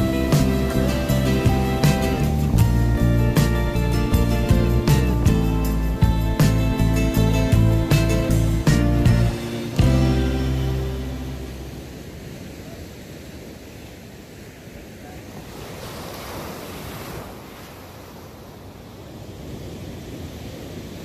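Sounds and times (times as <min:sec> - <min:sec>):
waves breaking on sand: 0:06.4 - 0:21.0.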